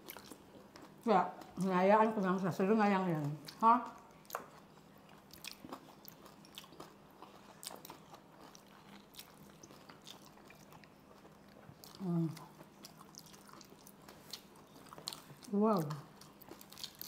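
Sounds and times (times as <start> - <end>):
person crunching and chewing: 0.0 - 1.6, 4.1 - 15.5, 16.1 - 17.0.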